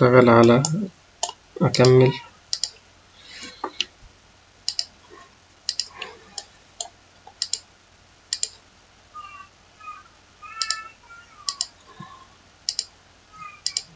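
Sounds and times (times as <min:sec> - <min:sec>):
faint high tones: 0:09.1 - 0:13.9.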